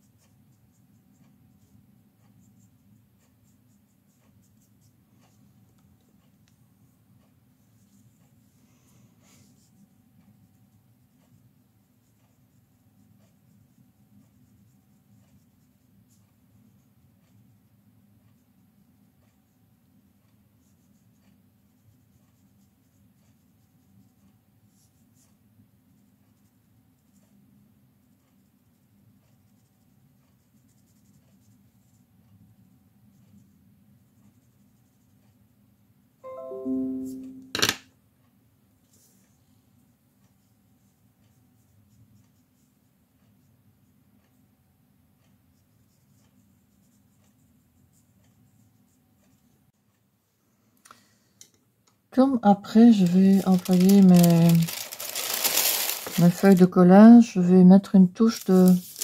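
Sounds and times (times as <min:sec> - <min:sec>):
pencil scratching on paper: 0:28.3 - 0:32.0, 0:33.1 - 0:35.3
brief chord: 0:36.2 - 0:37.6.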